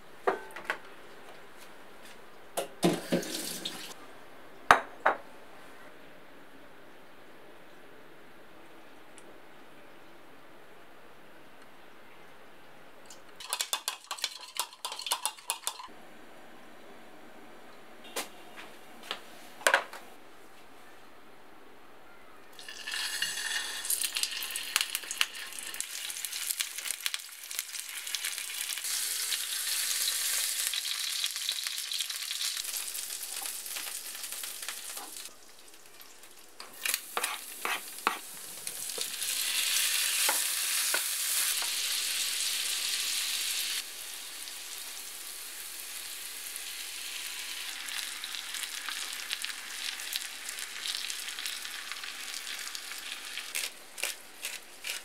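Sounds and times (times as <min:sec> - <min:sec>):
chicken sizzling in oil: 0:22.6 - 0:53.7.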